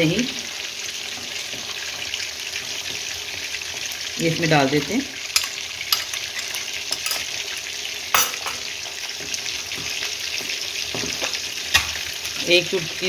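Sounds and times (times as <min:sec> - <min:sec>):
steady sizzling hiss: 0:00.0 - 0:13.0
metal spoon clinking on bowl: 0:05.4 - 0:07.3, 0:08.2 - 0:08.7.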